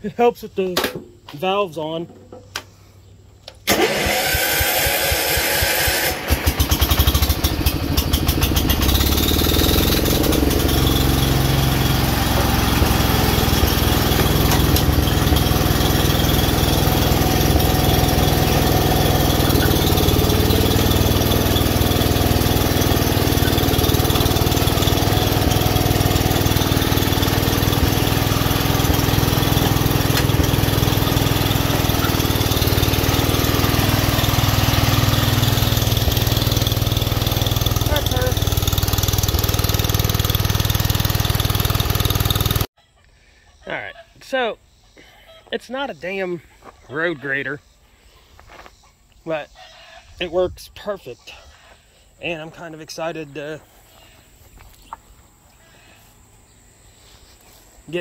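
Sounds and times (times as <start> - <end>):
tractor engine running: 3.4 - 42.7
electric starter cranking: 3.5 - 42.7.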